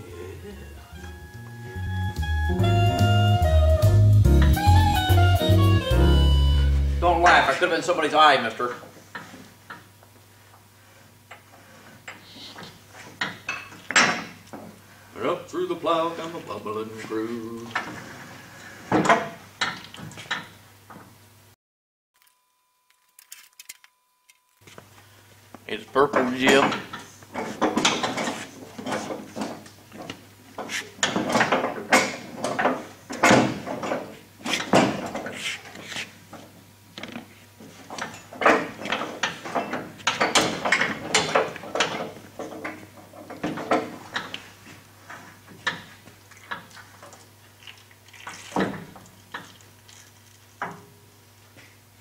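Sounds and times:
metal parts clanking and scraping: 0:26.0 - 0:29.6, 0:37.7 - 0:44.4.

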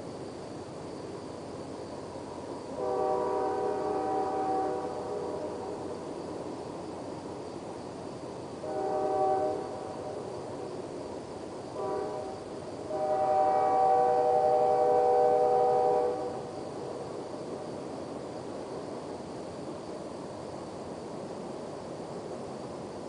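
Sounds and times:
low rumble of train: 0:00.0 - 0:23.0
locomotive air horn blasts: 0:02.8 - 0:05.5, 0:08.6 - 0:09.9, 0:11.8 - 0:16.5.

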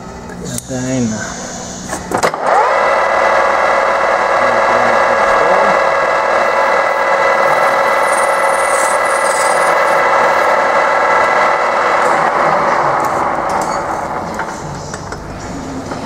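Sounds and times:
metal lathe whining: 0:02.4 - 0:14.6.

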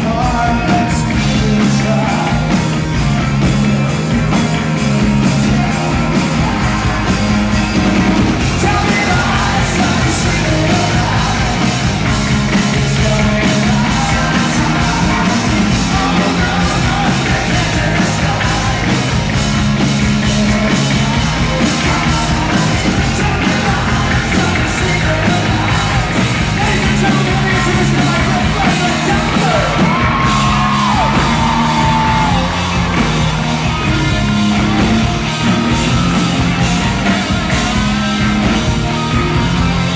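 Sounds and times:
man singing: 0:00.0 - 0:02.9, 0:08.4 - 0:19.3, 0:20.3 - 0:32.5
bass guitar: 0:00.0 - 0:39.9
drums: 0:00.0 - 0:39.9
electric guitar: 0:00.0 - 0:39.9.

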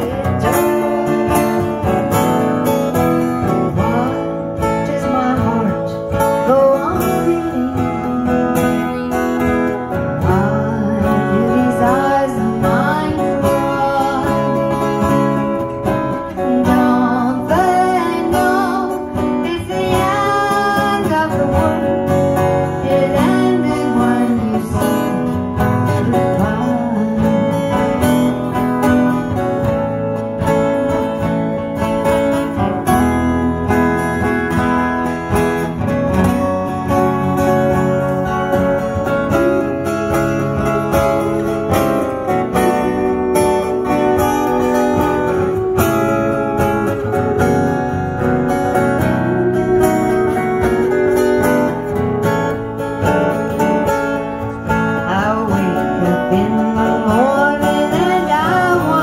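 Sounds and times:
woman singing: 0:00.0 - 0:01.9, 0:03.4 - 0:30.0, 0:54.9 - 0:59.0
acoustic guitars strumming: 0:00.0 - 0:59.0.

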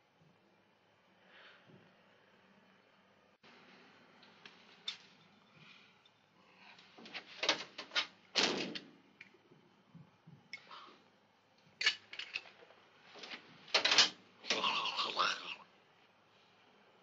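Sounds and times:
objects knocking and clinking: 0:11.8 - 0:12.7.

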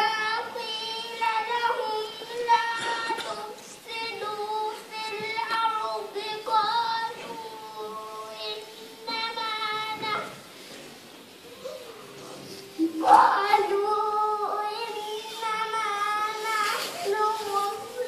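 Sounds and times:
girl singing solo: 0:12.8 - 0:18.0.

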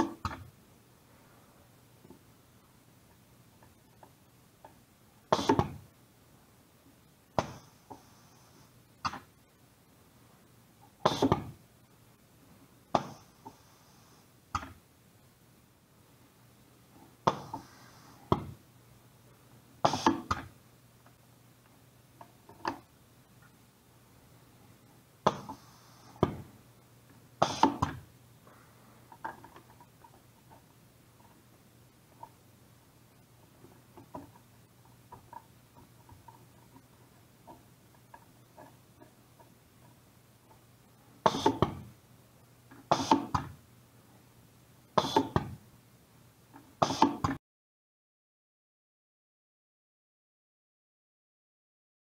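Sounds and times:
pneumatic valves clacking: 0:05.3 - 0:05.8, 0:11.0 - 0:11.5, 0:19.8 - 0:20.5, 0:27.4 - 0:28.0, 0:41.2 - 0:41.9, 0:42.8 - 0:43.5, 0:45.0 - 0:45.6, 0:46.8 - 0:47.4
compressed air hissing: 0:11.0 - 0:11.4, 0:17.3 - 0:18.3, 0:19.8 - 0:20.4, 0:25.2 - 0:26.6, 0:27.4 - 0:28.0, 0:41.2 - 0:41.7, 0:42.9 - 0:43.4, 0:45.0 - 0:45.4, 0:46.8 - 0:47.3.

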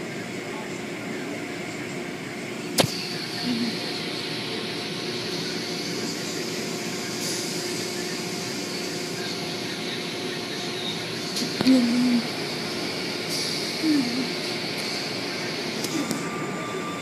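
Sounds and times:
car wash machinery running: 0:00.0 - 0:17.0
faint hum: 0:00.0 - 0:17.0
sharp click: 0:02.8 - 0:03.0.

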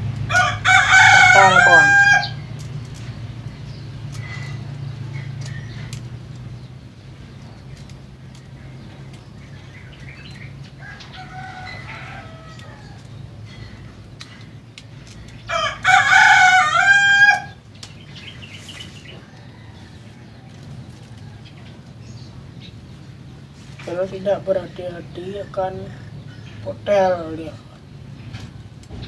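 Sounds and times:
steady low hum: 0:00.0 - 0:29.0
rooster crowing: 0:00.2 - 0:02.6, 0:10.7 - 0:13.2, 0:15.4 - 0:17.6, 0:19.1 - 0:21.9.

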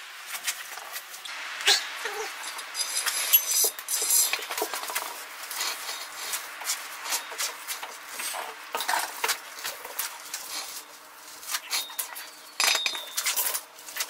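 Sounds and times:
metallic clinks and knocks: 0:11.7 - 0:13.6.

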